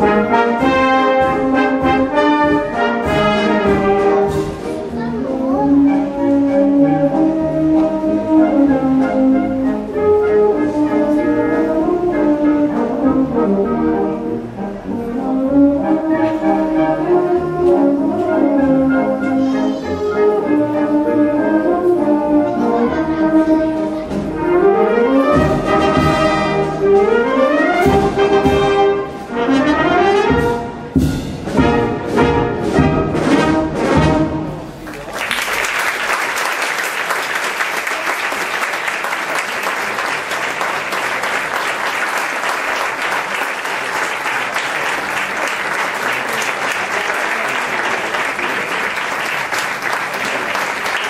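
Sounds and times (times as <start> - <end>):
wind band playing: 0.0 - 51.0
drum hits: 30.3 - 33.1
audience applauding: 34.8 - 51.0.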